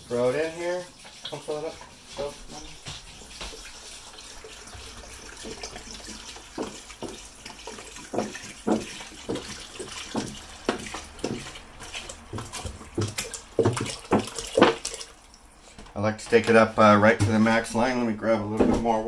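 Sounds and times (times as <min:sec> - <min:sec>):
water glugging from a jug: 0:00.9 - 0:15.7.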